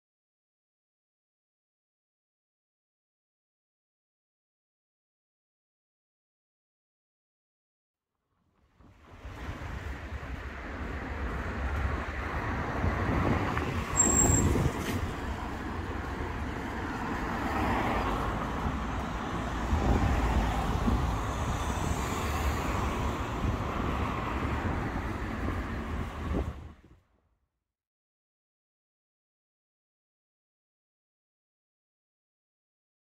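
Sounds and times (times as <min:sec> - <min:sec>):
traffic on wet street: 0:08.6 - 0:27.0
brief shrill squeal: 0:13.9 - 0:14.9.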